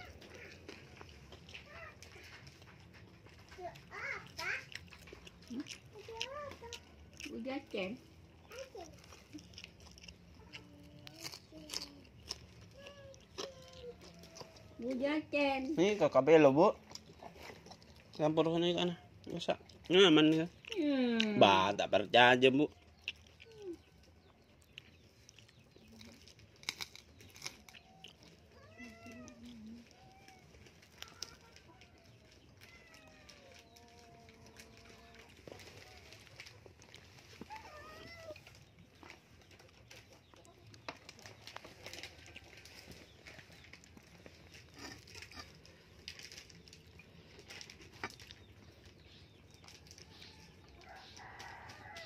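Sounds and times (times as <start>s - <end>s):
faint animal cries: 27.8s - 36.2s, 37.4s - 38.6s.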